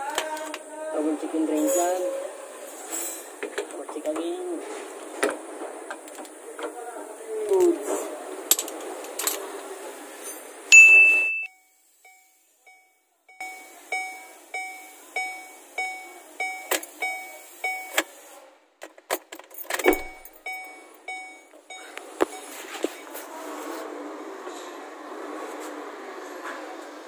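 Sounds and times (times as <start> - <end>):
dashboard warning chime dings: 10.7 - 11.5, 12.1 - 18.0, 19.8 - 22.6.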